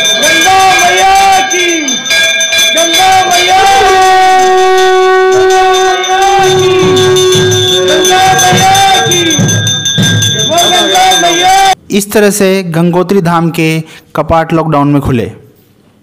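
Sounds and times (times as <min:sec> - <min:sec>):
low beat: 0:03.1 - 0:11.8.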